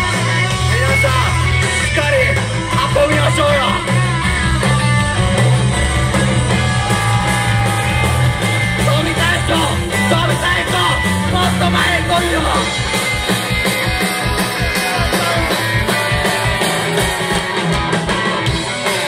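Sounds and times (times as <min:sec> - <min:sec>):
drum kit: 0:00.0 - 0:19.0
electric guitar: 0:00.0 - 0:19.0.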